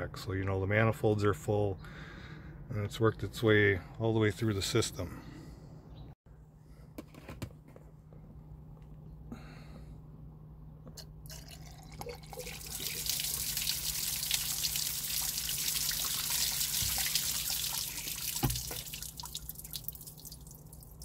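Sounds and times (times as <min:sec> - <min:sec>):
liquid pouring from a jug: 0:11.2 - 0:21.0
liquid splashing on engine: 0:11.9 - 0:21.0.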